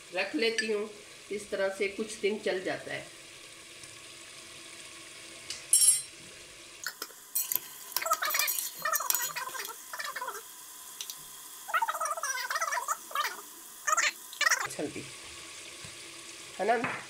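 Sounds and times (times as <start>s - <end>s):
faint sizzle: 0.0s - 17.0s
metal spatula scraping pot: 7.4s - 9.8s.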